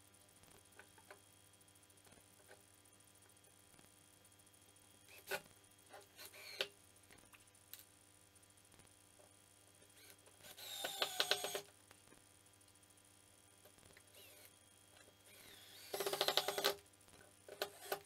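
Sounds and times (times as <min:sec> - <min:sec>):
cordless drill pulsing into wood: 0:10.0 - 0:11.7, 0:15.3 - 0:16.8, 0:17.6 - 0:18.0.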